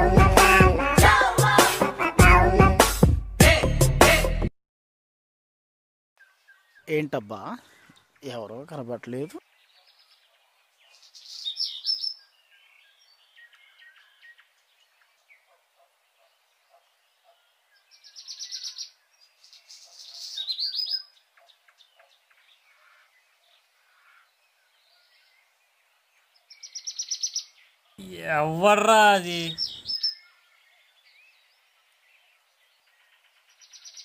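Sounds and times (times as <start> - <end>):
faint bird chirps: 9.4 - 28.0, 29.5 - 34.0
bird trilling: 29.5 - 30.2.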